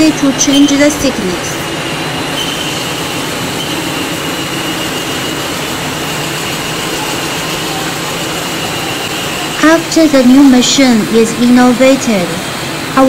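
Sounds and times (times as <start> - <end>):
veneer lathe running with whine: 1.6 - 9.6.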